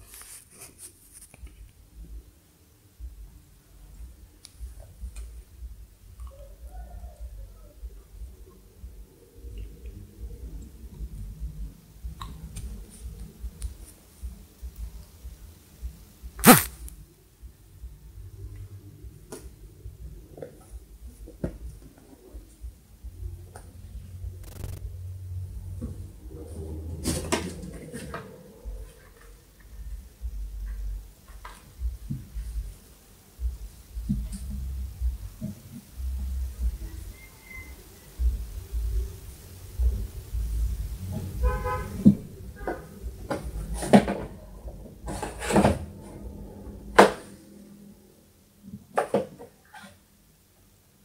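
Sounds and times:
scraping rustle: 0:00.0 - 0:01.6.

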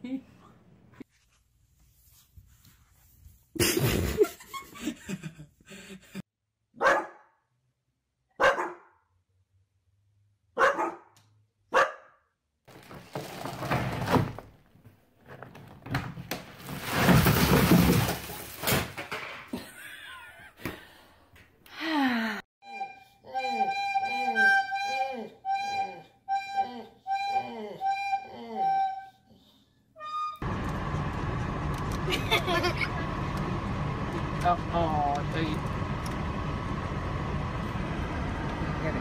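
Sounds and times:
dog barking: 0:06.8 - 0:07.4, 0:08.3 - 0:09.0, 0:10.6 - 0:12.2.

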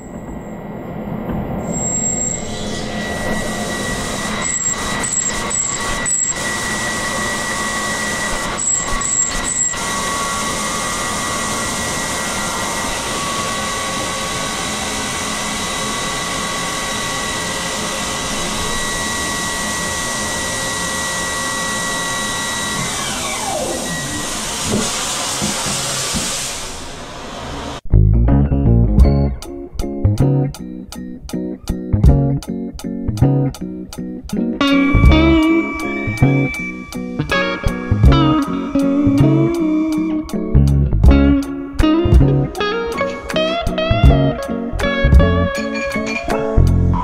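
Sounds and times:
high spindle whine: 0:00.0 - 0:27.8, 0:34.6 - 0:47.0
coolant spraying hiss: 0:24.4 - 0:27.7.

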